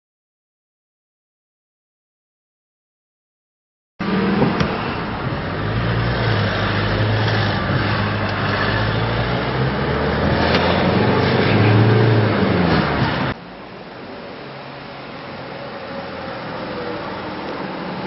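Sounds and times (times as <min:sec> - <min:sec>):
car engine and road noise: 0:04.0 - 0:18.0.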